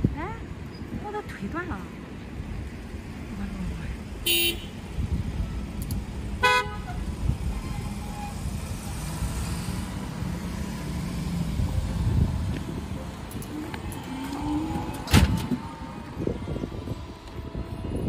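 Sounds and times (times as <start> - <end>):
road noise rumble: 0.0 - 18.0
car driving past: 7.8 - 16.6.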